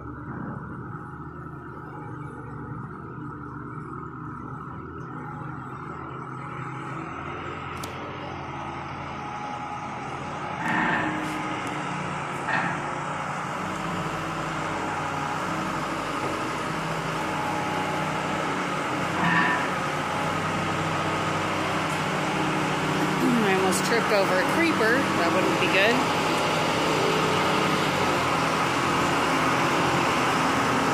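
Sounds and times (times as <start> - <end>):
truck diesel engine running: 0.0 - 30.9.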